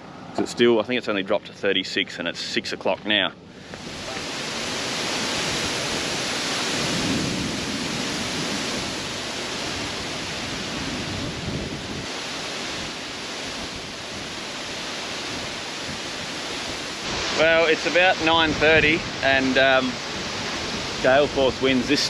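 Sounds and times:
storm wind gusting: 3.4s - 22.0s.

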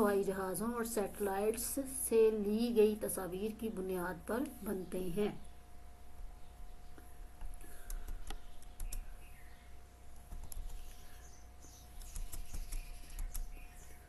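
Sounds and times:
faint steady hum: 0.0s - 14.0s
keyboard and mouse clicks: 7.8s - 9.1s, 10.3s - 10.9s, 12.0s - 13.5s.

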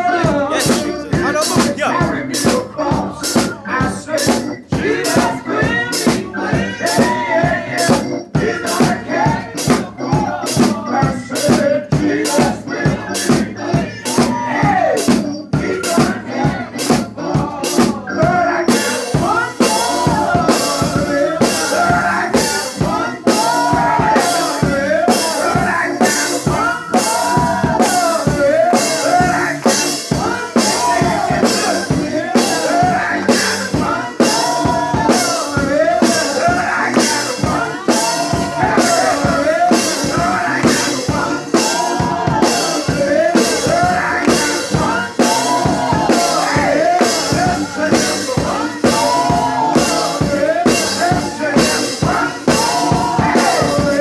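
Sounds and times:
man singing into a microphone: 0.0s - 4.5s
drum kit beat: 0.0s - 54.0s.

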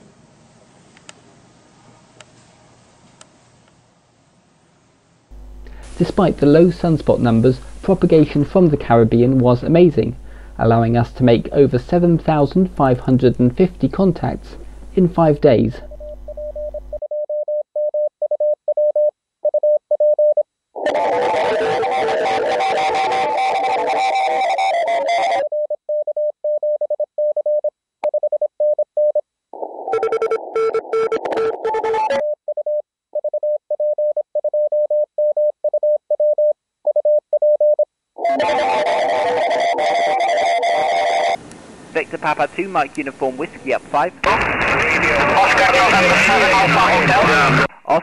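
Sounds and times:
hissy receiver audio: 5.3s - 17.0s, 38.2s - 48.0s
morse code tone: 6.1s - 17.9s, 20.9s - 27.6s, 30.0s - 41.4s
background music with guitar: 20.8s - 25.4s, 38.2s - 41.4s.

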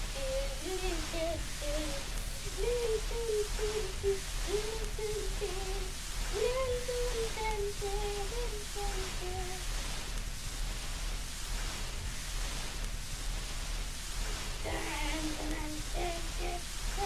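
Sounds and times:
person humming a tune: 0.0s - 9.6s, 14.6s - 17.0s
low steady hum: 0.0s - 17.0s
steady hiss: 0.0s - 17.0s.

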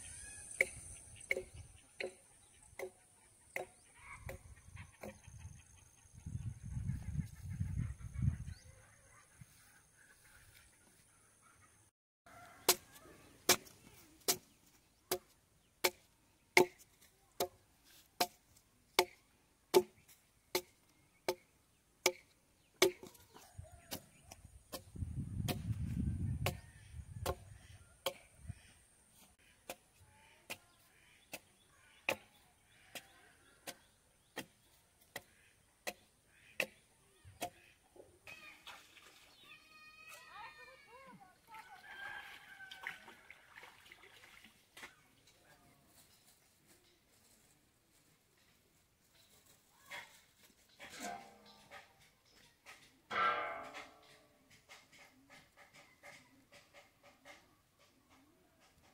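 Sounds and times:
axe chopping into log: 22.8s - 23.1s.

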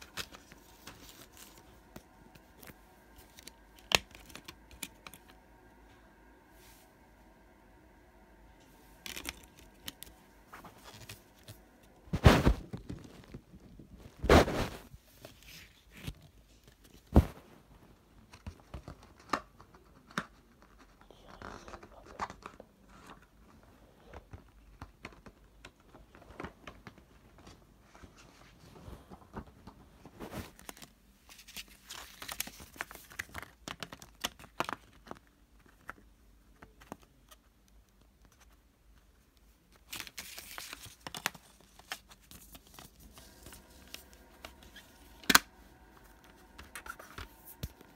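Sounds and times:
plastic wrapping crinkling and tearing: 9.0s - 11.6s, 30.2s - 35.8s, 39.7s - 47.9s.

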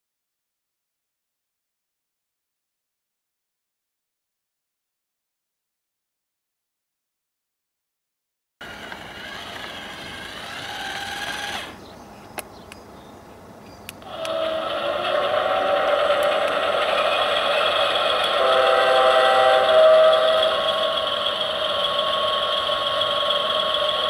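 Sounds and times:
toy locomotive whirring hum: 8.6s - 11.9s, 14.0s - 24.0s
wavering tones: 14.0s - 24.0s.

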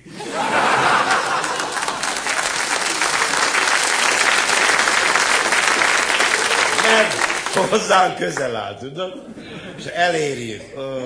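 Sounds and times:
audience applauding: 0.4s - 8.6s.

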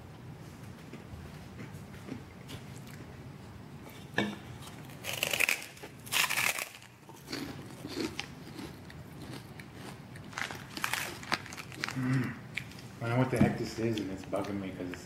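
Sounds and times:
walnuts crunching while chewed: 4.6s - 12.9s.

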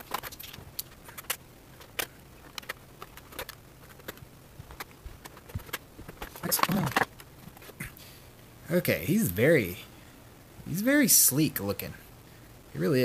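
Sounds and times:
toy packaging clicks and taps: 0.1s - 7.3s.

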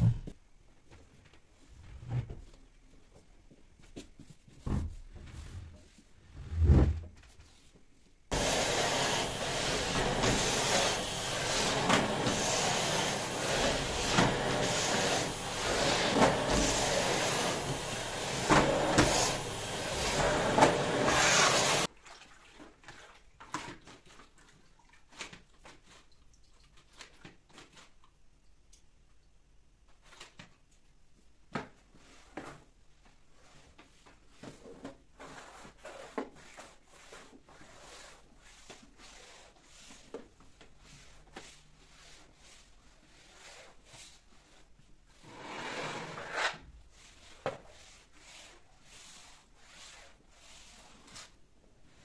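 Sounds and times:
vacuum cleaner running: 8.3s - 21.9s.

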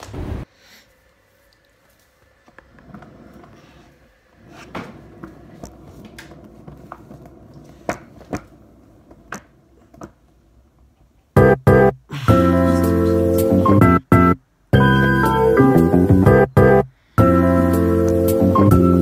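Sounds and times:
faint rustling and handling noises: 0.8s - 10.5s.

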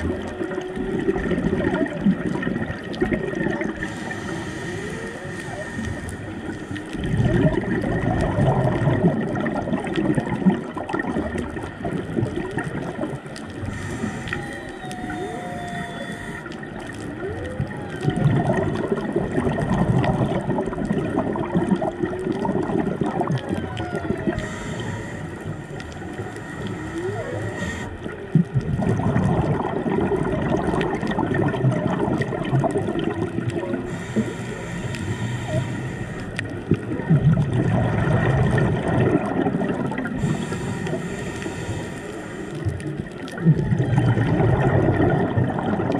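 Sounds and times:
exhaled bubbles rushing: 0.0s - 45.9s
whale song: 0.0s - 45.9s
scuba regulator breathing: 3.6s - 7.6s, 13.4s - 18.1s, 23.8s - 28.4s, 33.6s - 36.7s, 40.0s - 43.1s.

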